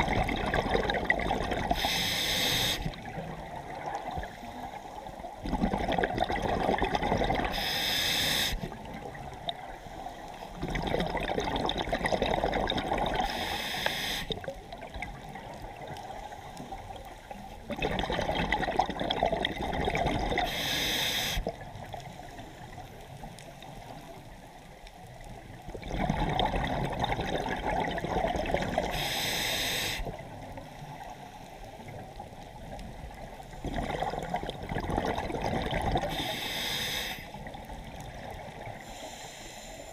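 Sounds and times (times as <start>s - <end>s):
diver breathing through regulator: 1.7s - 3.0s, 7.4s - 8.8s, 13.2s - 14.4s, 20.4s - 21.6s, 28.8s - 30.2s, 36.0s - 37.4s, 38.8s - 39.9s.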